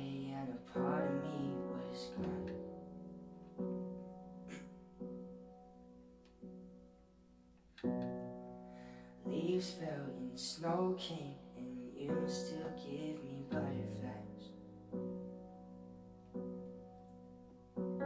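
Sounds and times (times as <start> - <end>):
young man singing: 0.0 - 2.6, 9.3 - 14.6
keyboard piano chords: 0.0 - 18.0.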